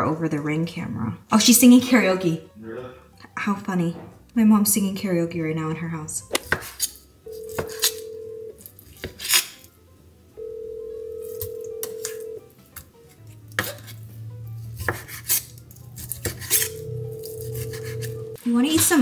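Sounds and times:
knife chopping on wooden board: 0:06.3 - 0:06.9, 0:09.0 - 0:09.5, 0:13.5 - 0:14.0, 0:14.8 - 0:16.7
phone ringback tone: 0:07.2 - 0:08.6, 0:10.3 - 0:12.5, 0:16.6 - 0:18.4.

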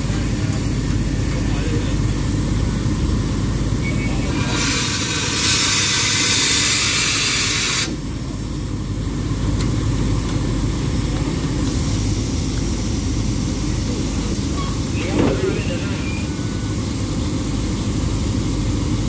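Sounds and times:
steam locomotive hiss: 0:04.2 - 0:08.0.

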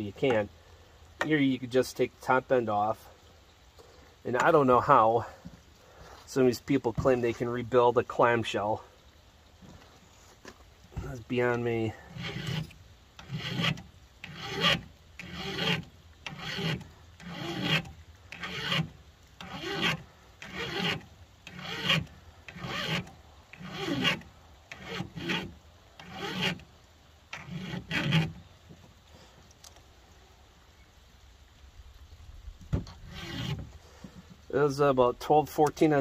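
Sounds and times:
file rasping on chainsaw chain: 0:12.0 - 0:26.6, 0:27.4 - 0:28.4, 0:33.0 - 0:33.6.

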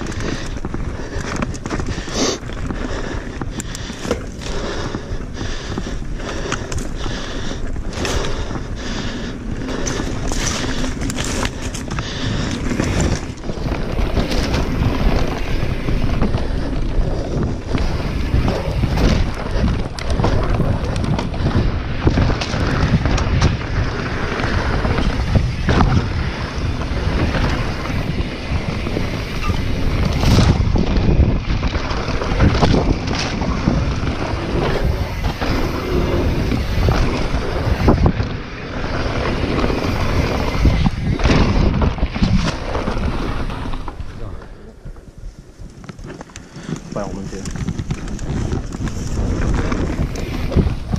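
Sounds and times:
tyres rolling on loose dirt: 0:00.0 - 0:50.9
wind buffeting microphone: 0:00.0 - 0:50.9
bike clattering over rocks: 0:09.8 - 0:44.5, 0:45.8 - 0:50.9.

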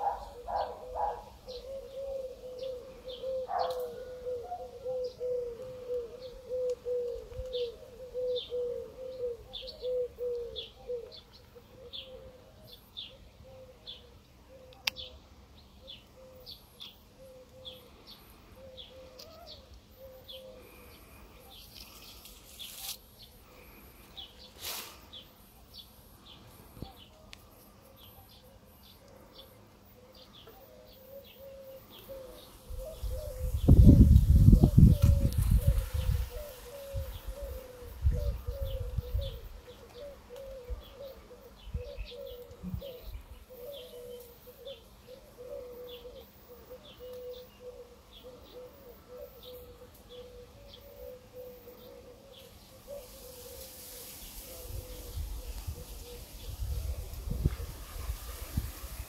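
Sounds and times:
bird chirping: 0:00.0 - 0:53.6
low repeated bird notes: 0:00.0 - 0:59.0
brief rustles: 0:21.6 - 0:23.0.

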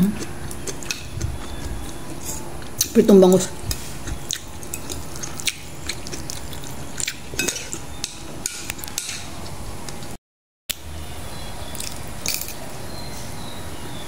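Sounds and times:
steady low hum: 0:00.0 - 0:14.0
chewing and mouth clicks: 0:00.2 - 0:03.0, 0:03.7 - 0:07.9, 0:11.7 - 0:12.4.

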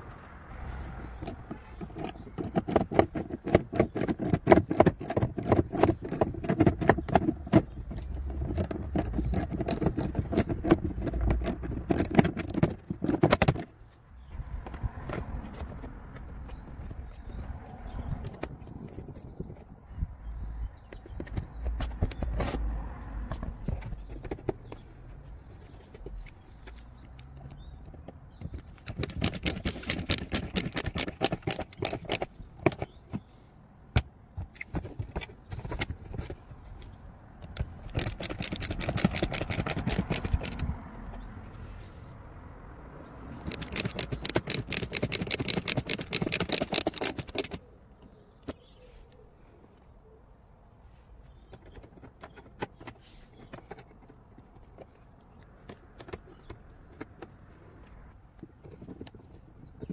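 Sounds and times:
cordless screwdriver rattling: 0:00.8 - 0:13.7, 0:28.8 - 0:32.9, 0:37.7 - 0:40.7, 0:43.3 - 0:47.6.

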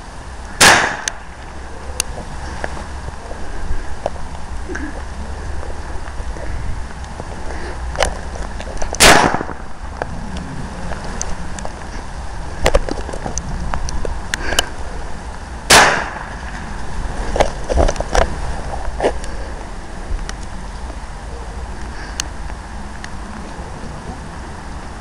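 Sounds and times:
wind rumble on microphone: 0:00.0 - 0:25.0
firecracker bangs: 0:00.6 - 0:01.3, 0:09.0 - 0:09.7, 0:15.7 - 0:16.6.

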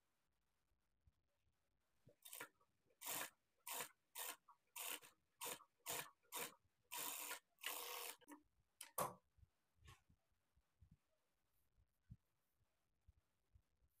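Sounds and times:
sewing machine stitching: 0:02.2 - 0:08.4.

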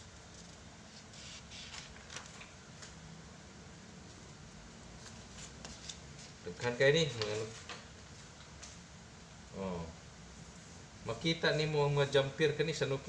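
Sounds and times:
paper pages rustling: 0:00.3 - 0:02.9.

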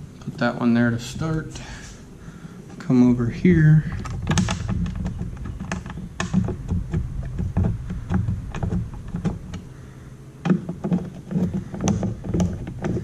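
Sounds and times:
low handling rumble: 0:00.0 - 0:13.0
screwdriver clicks and knocks: 0:03.9 - 0:09.6, 0:10.4 - 0:13.0.

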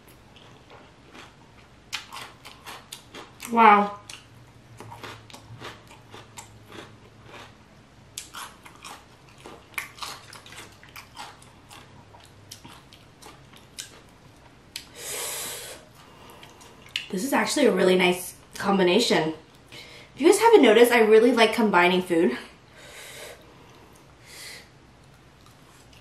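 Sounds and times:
chewing crisp vegetable: 0:00.1 - 0:14.9, 0:25.0 - 0:26.0.

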